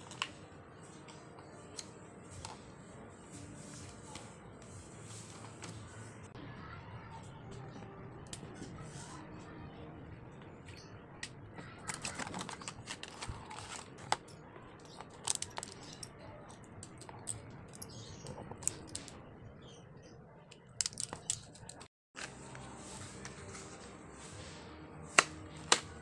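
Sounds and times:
plastic pens clicking: 0:11.2 - 0:19.1, 0:20.5 - 0:21.9.

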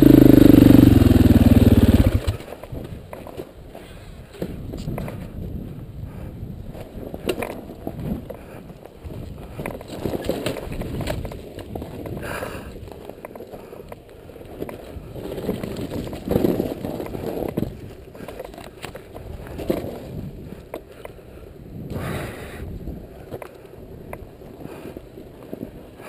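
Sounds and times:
dirt bike engine revving: 0:00.0 - 0:02.4.

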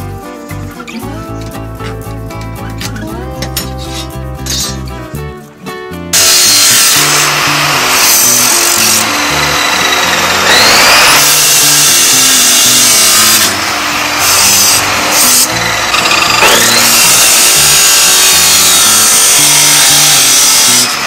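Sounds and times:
chop saw grinding steel: 0:02.8 - 0:04.8, 0:06.2 - 0:21.0
rising whine: 0:06.1 - 0:19.2.

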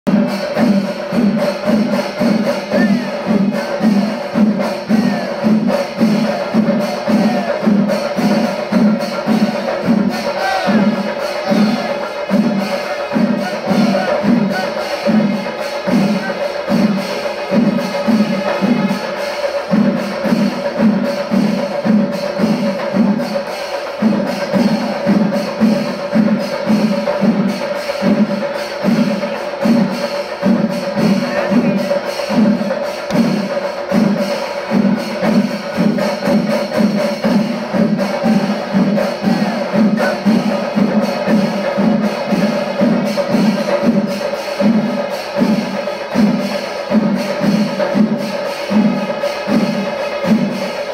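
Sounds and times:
cymbal clashes: 0:00.1 - 0:50.9
low drum beat: 0:00.1 - 0:50.9
massed drums playing: 0:00.1 - 0:50.9.

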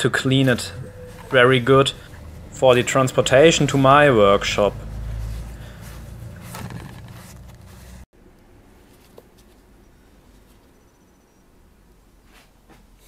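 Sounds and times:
rag wiping machine parts: 0:00.0 - 0:08.0.

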